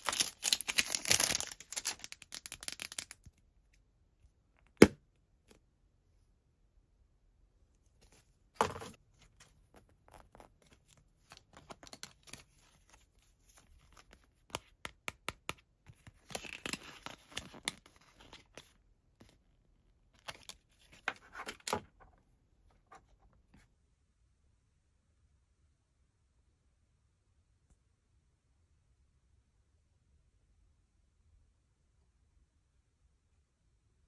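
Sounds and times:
cardboard tag crinkling: 0.0s - 3.1s.

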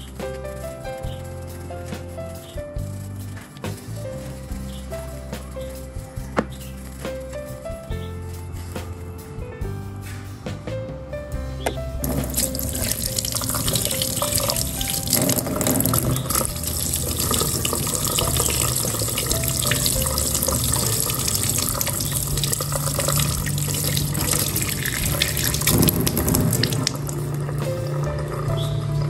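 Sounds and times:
tap water splashing into sink: 12.0s - 27.9s.

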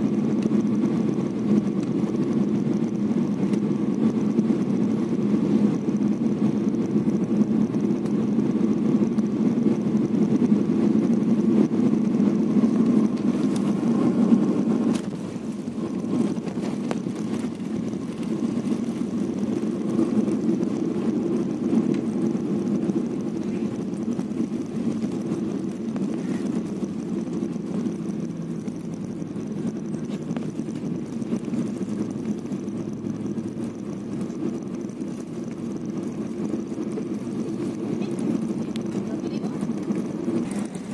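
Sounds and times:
jet engines rumbling in cabin: 0.0s - 40.9s.

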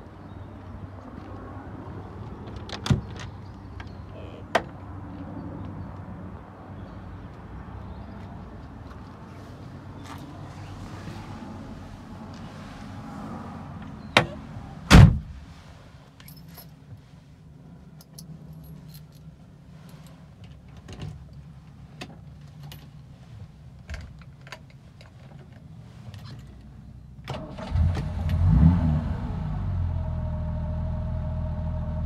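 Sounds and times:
heavy thump: 14.2s - 15.4s
car keys jangling: 16.2s - 16.8s.

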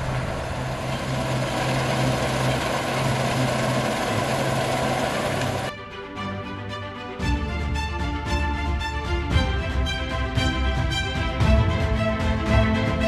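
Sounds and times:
combine harvester engine hum: 0.0s - 5.7s
music: 1.8s - 13.0s.

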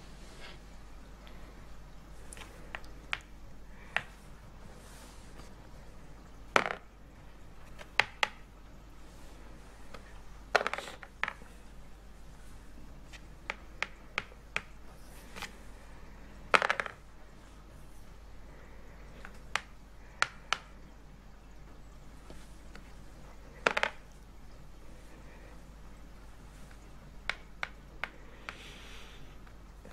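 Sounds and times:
game pieces tapped on board: 6.5s - 6.8s, 13.4s - 14.8s, 16.5s - 17.0s, 23.6s - 24.0s, 27.2s - 28.6s
dice rolling on table: 6.5s - 6.9s, 10.5s - 11.4s, 16.5s - 17.0s, 23.5s - 24.0s.

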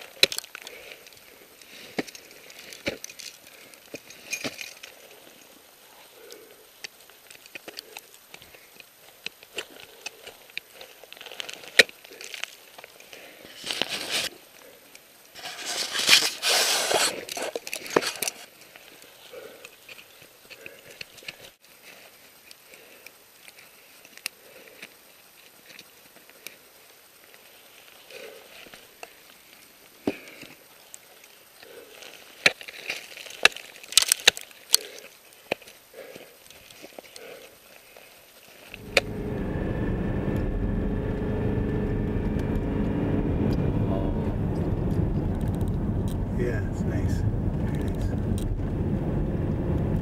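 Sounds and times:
ice crunching and scraping: 0.0s - 6.2s, 7.1s - 14.4s, 15.3s - 24.9s, 30.1s - 39.0s.

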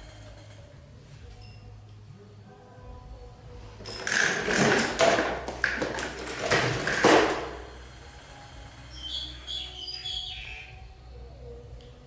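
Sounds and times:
plastic toys clattering: 3.8s - 7.6s.

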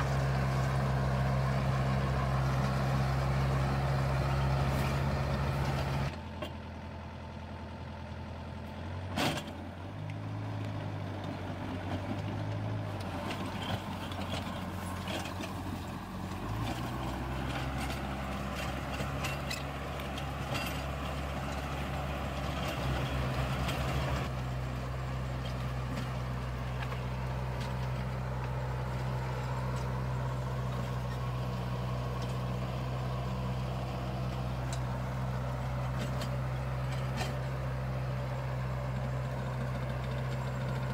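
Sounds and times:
tractor diesel engine running: 0.0s - 40.9s
implement clatter: 11.2s - 40.9s.

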